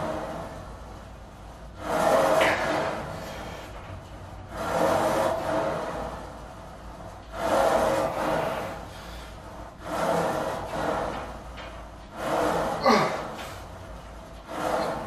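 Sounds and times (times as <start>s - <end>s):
rasping heavy breaths: 7.3s - 15.0s
person grunting: 12.8s - 13.4s.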